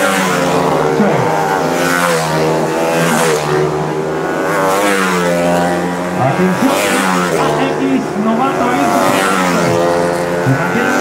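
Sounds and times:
race motorcycles passing at high revs: 0.0 - 11.0.

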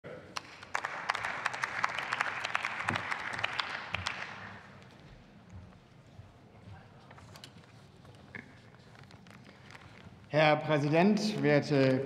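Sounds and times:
applause: 0.2 - 4.8.

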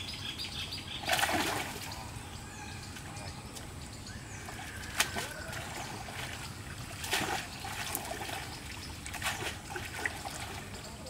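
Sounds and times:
water splashing and trickling: 0.9 - 11.0
short sharp splashes: 1.0 - 1.9, 4.8 - 10.7.

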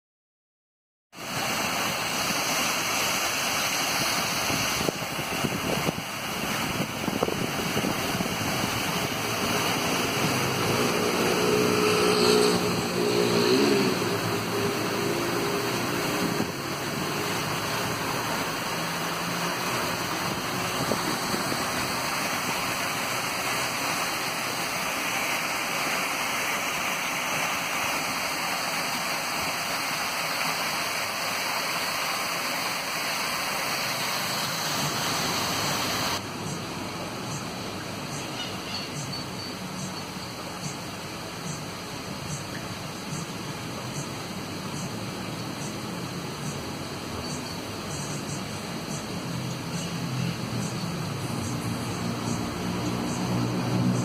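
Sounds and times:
water cascading down a wall: 1.2 - 36.2
passing vehicle engine: 9.2 - 26.1, 51.1 - 54.0.

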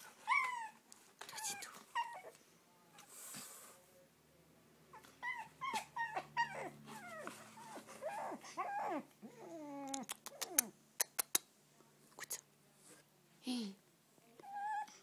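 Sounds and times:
puppy whimpering: 0.2 - 0.8, 1.4 - 2.4, 4.9 - 10.7, 14.4 - 15.0
sharp clicks: 9.9 - 11.4.

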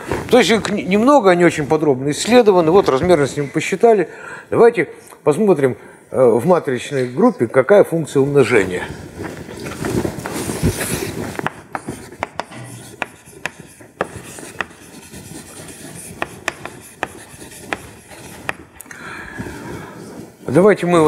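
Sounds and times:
chalk writing on a blackboard: 10.5 - 18.8
chalk tapping on board: 11.4 - 18.7.

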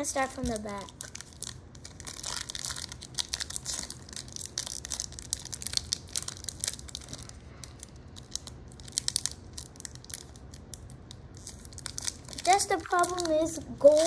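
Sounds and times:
foil wrapper crinkling: 0.1 - 14.0.

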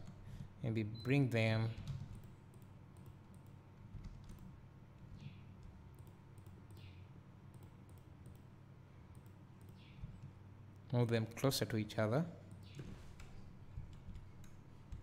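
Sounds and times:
computer mouse clicks: 1.8 - 4.5, 5.2 - 8.5, 9.1 - 10.9.

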